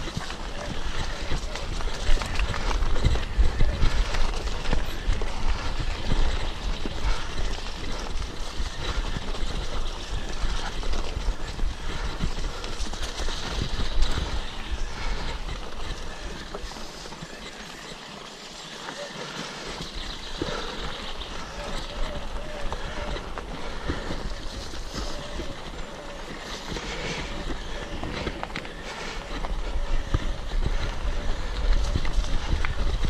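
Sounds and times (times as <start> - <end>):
wind buffeting microphone: 0.0 - 17.6, 19.6 - 33.0
tyres crunching over stones: 0.0 - 33.0.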